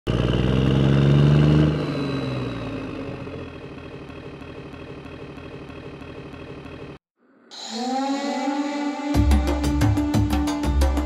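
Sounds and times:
tank engine idling: 0.1s - 7.0s.

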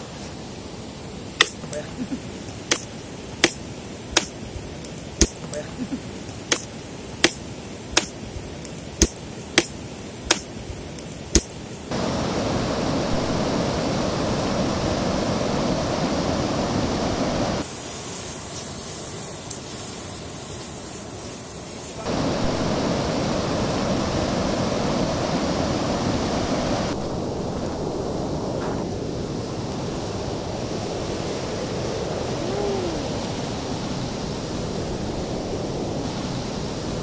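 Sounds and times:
river rapids and waterfall rushing: 0.0s - 27.3s, 28.1s - 37.0s.

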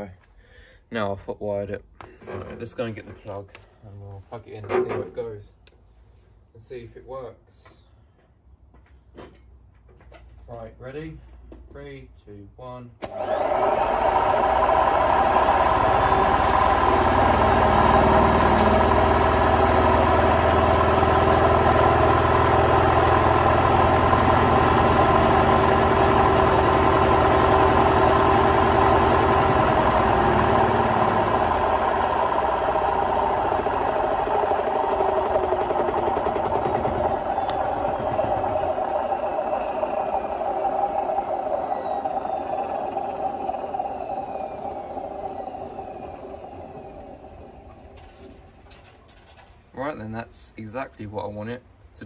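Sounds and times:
washing machine motor whine: 13.0s - 48.8s.

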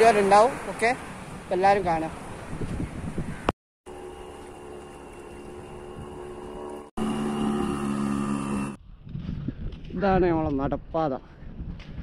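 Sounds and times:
motorboat engine humming: 3.9s - 8.8s.

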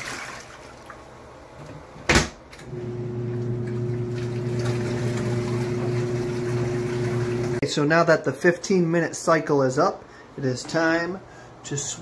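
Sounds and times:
water sloshing in tub: 0.0s - 1.2s, 3.1s - 7.6s
washing machine motor hum: 1.1s - 7.6s.

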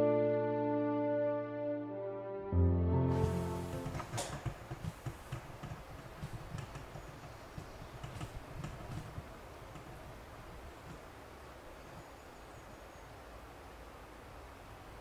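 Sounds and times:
faint hiss: 3.1s - 15.0s.

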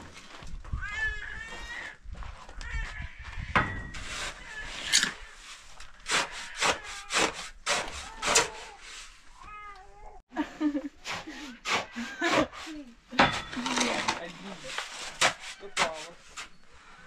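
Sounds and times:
meow-like animal call: 9.4s - 10.2s.

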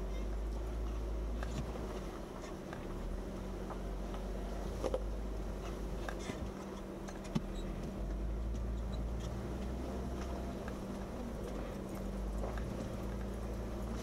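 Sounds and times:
engine running low: 0.0s - 14.0s.

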